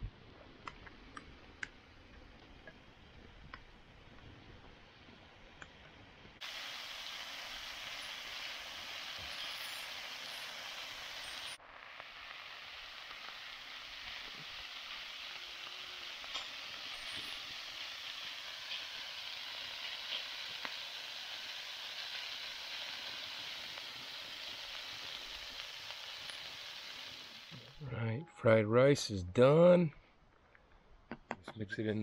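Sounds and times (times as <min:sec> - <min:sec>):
food sizzling on flat pan: 0:06.4 - 0:27.8.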